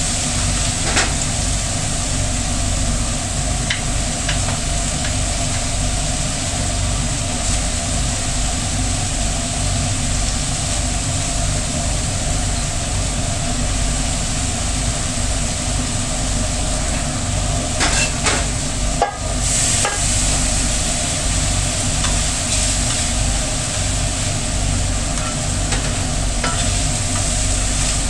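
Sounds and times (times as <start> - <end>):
food sizzling on a griddle: 0.0 - 28.0
steady low hum: 0.0 - 28.0
spatula clanks and scrapes: 17.8 - 19.2, 25.2 - 27.3.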